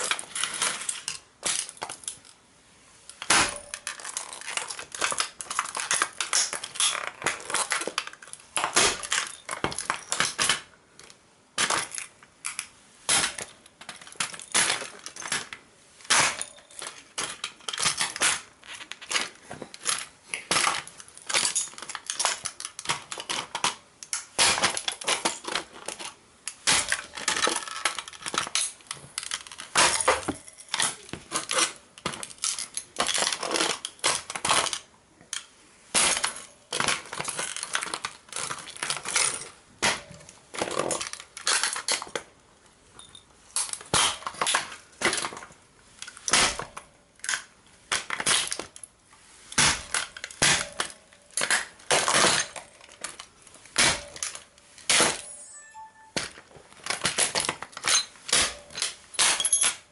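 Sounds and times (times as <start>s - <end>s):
toy car crunching and cracking: 0.0s - 2.4s, 3.1s - 42.4s, 43.6s - 48.9s, 49.6s - 55.2s, 56.7s - 59.9s
small parts clinking on tile floor: 42.9s - 43.8s, 56.9s - 59.9s.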